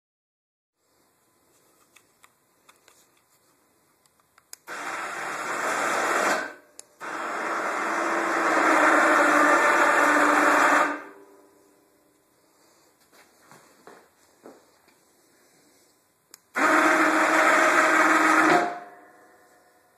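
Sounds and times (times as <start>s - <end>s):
electric winch motor: 4.7s - 11.2s, 16.5s - 19.7s.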